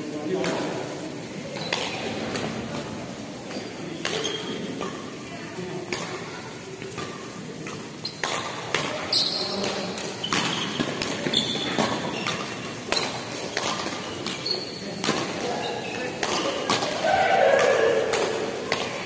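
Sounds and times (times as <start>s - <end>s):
racket hitting shuttlecock: 6.9s - 19.0s.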